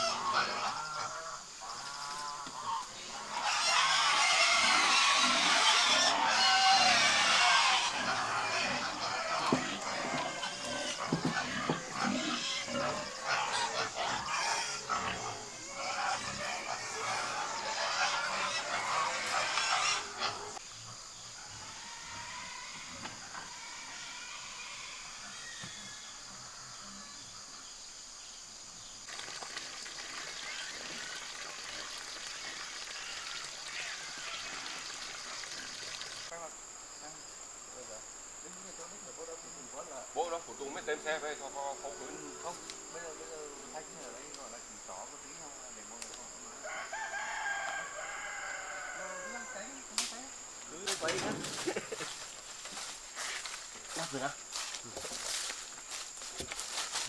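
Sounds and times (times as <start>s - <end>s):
pigs grunting: 0.0s - 20.6s
insects chirping: 0.0s - 57.0s
water pouring into a pond: 29.1s - 36.3s.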